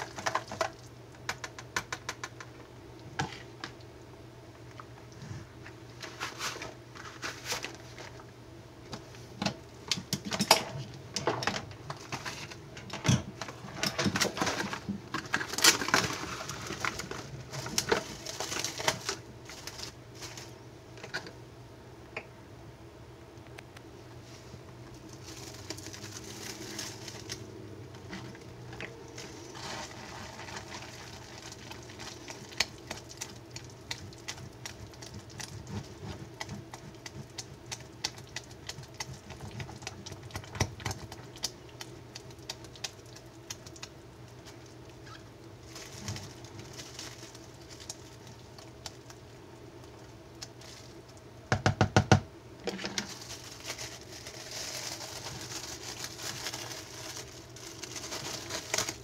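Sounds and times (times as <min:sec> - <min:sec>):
plastic wrap crinkling: 0:00.0 - 0:02.6, 0:05.9 - 0:08.3, 0:13.4 - 0:21.1, 0:24.3 - 0:51.3, 0:52.6 - 0:59.0
spatula stirring thick batter: 0:32.0 - 0:44.5.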